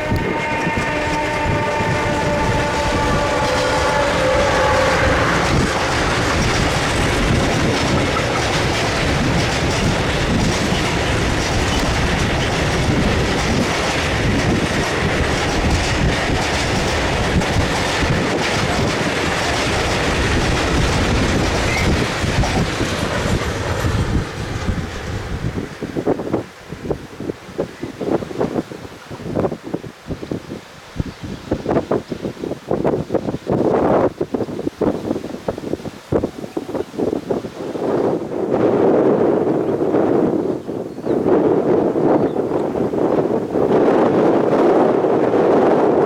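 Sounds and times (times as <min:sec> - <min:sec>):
train horn blast: 0:00.0 - 0:06.4
train wheels clattering over rails: 0:00.0 - 0:27.4.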